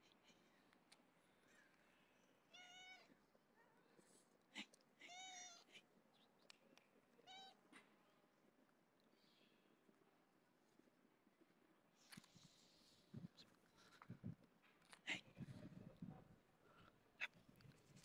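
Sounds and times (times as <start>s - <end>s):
cat meowing: 2.5s - 3.2s.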